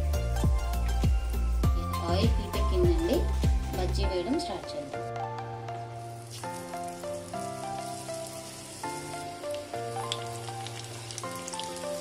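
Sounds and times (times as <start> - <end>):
tropical house music: 0.0 - 6.6
food sizzling in hot oil: 5.8 - 12.0.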